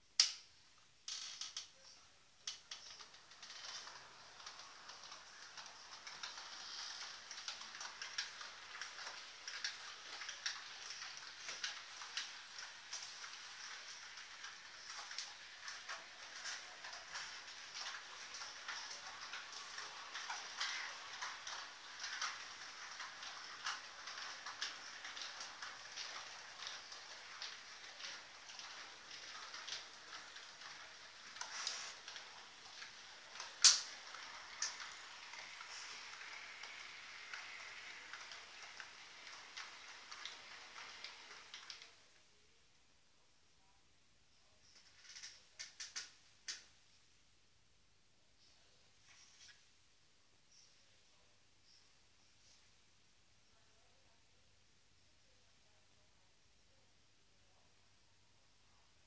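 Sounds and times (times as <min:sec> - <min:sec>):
wheels clicking over rail joints: 0:02.4 - 0:42.2
model train running hiss: 0:02.5 - 0:42.2.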